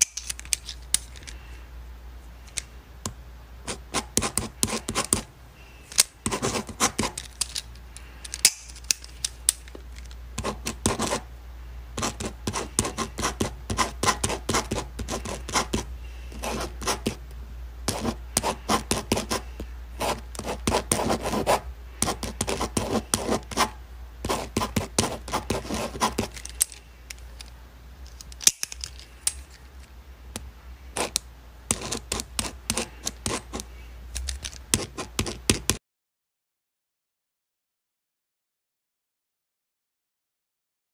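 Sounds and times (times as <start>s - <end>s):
low steady hum: 0.0s - 35.8s
pen scratching on paper: 3.7s - 5.3s, 6.2s - 7.2s, 10.4s - 11.2s, 12.0s - 17.2s, 17.9s - 26.4s, 31.0s - 33.7s, 34.7s - 35.8s.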